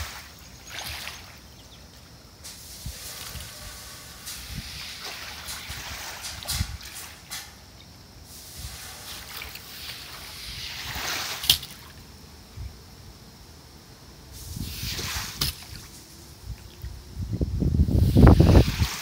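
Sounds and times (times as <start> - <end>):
water sloshing and splashing: 0.0 - 7.6, 8.6 - 12.0, 14.6 - 17.0.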